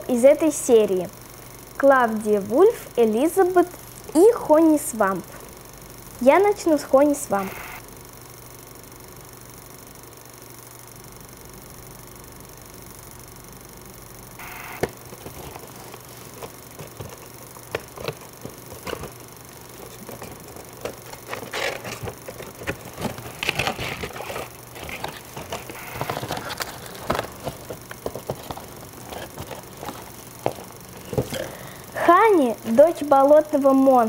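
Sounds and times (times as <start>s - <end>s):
packaging clicks and taps: 14.8s - 31.6s
packaging crinkling: 14.8s - 32.0s.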